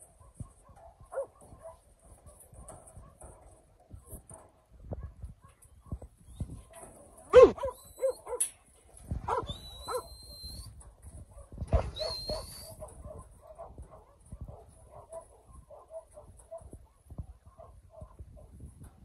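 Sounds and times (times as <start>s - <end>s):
dog barking: 0.2s - 3.4s, 7.3s - 8.5s, 9.3s - 10.1s, 11.3s - 18.5s.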